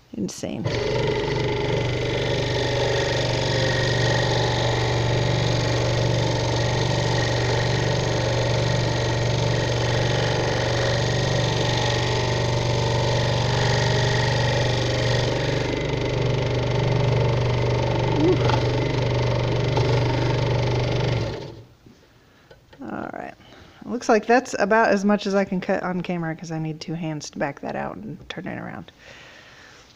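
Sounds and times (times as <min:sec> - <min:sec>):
scroll saw running: 0:00.6 - 0:21.6.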